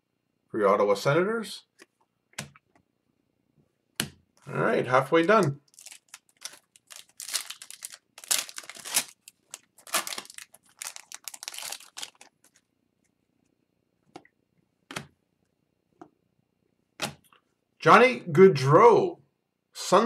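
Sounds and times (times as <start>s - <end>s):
foil card pack tearing and crinkling: 5.7s - 12.6s.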